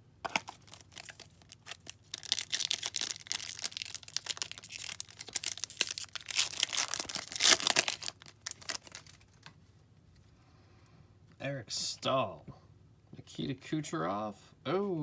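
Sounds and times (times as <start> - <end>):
foil wrapper tearing and crinkling: 0.3 - 9.5.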